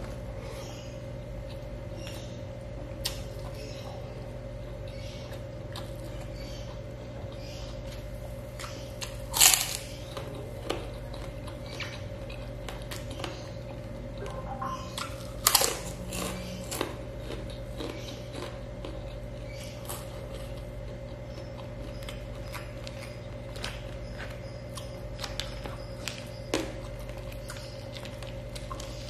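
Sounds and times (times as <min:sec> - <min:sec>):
close-up chewing: 0:00.0 - 0:29.0
steady low hum: 0:00.0 - 0:29.0
loud crunching bites: 0:08.6 - 0:29.0.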